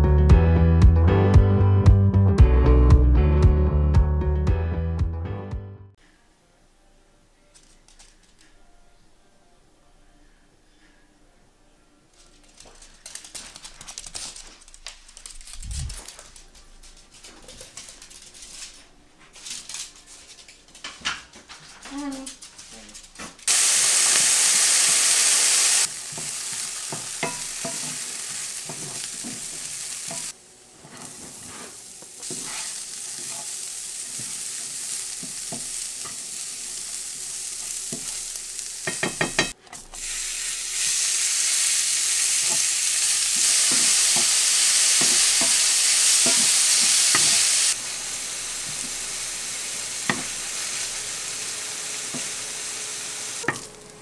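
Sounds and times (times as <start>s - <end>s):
potatoes and meat sizzling in pan: 23.4s - 54.0s.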